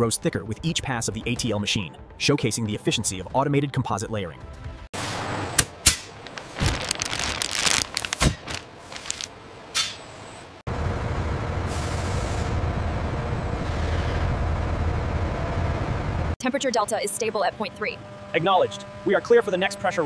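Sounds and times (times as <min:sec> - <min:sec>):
heavy vehicle rumbling: 0:06.2 - 0:16.4.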